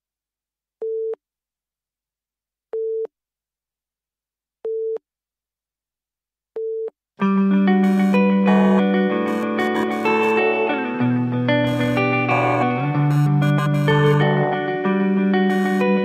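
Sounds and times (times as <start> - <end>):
music: 7.2 - 16.0.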